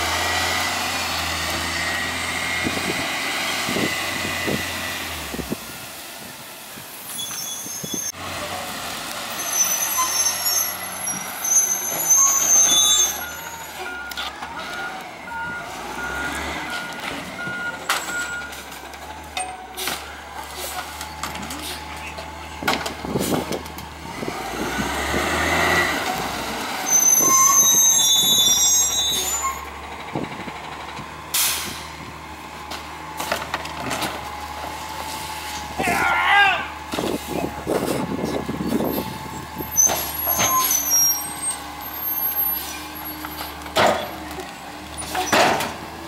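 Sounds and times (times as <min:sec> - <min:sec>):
garbage truck engine: 0:00.0 - 0:46.0
high-pitched brake squeal: 0:07.0 - 0:08.2, 0:09.3 - 0:14.2, 0:26.8 - 0:29.7, 0:38.7 - 0:43.4
squeaks and knocks from blade: 0:07.1 - 0:08.1, 0:27.0 - 0:29.6, 0:39.8 - 0:41.4.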